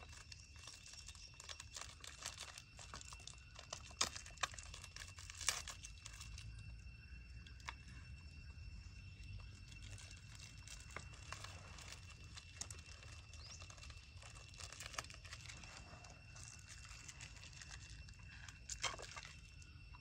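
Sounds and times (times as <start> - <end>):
high-pitched insect drone: 0.0 - 20.0.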